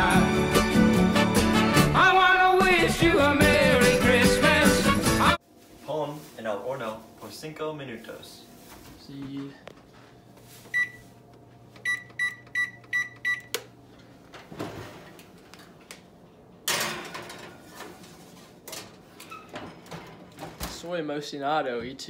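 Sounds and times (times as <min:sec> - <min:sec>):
oven control panel beeping: 0:11.8 - 0:13.7
oven door opening: 0:18.7 - 0:20.9.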